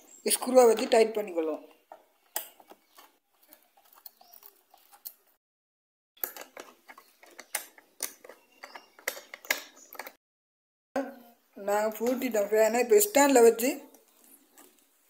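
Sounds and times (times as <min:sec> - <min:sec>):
plastic housing clicks taps and scrapes: 0:06.2 - 0:10.2.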